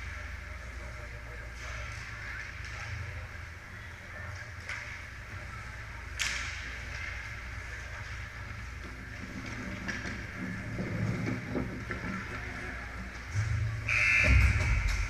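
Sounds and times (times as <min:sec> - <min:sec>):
hockey stick clicks: 0:06.1 - 0:07.1.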